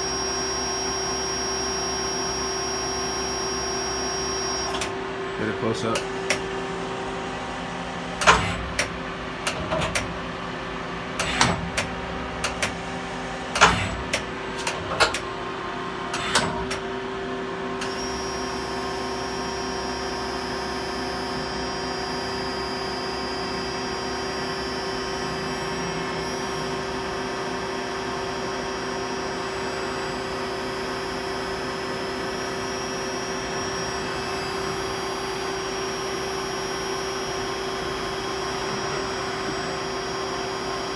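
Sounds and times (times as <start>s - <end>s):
steady high whine: 0.0s - 8.9s, 17.8s - 40.9s
steady machine hum: 0.0s - 40.9s
tool changer clunks and clicks: 13.6s - 15.3s.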